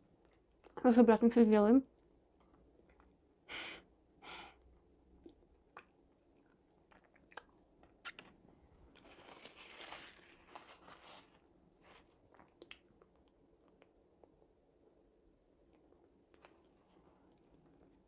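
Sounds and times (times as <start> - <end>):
person chewing crispy food: 5.3 - 10.6.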